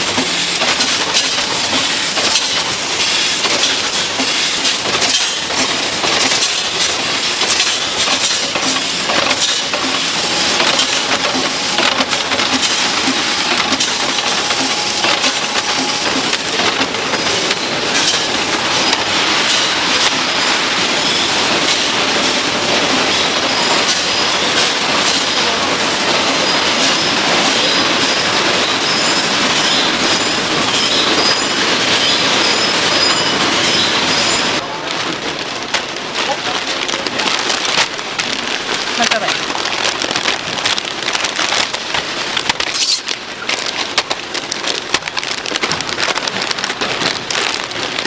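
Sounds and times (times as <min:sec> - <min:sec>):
processing machinery clattering: 0:00.0 - 0:48.0.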